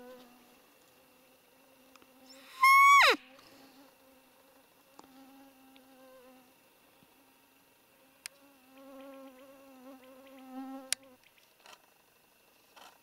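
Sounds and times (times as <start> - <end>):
flying insect buzzing: 0.0 - 6.6, 8.0 - 11.2.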